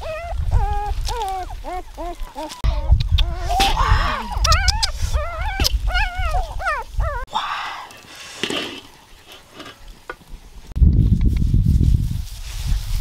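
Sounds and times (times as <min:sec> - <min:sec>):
animal crying out in high calls: 0:03.3 - 0:07.3.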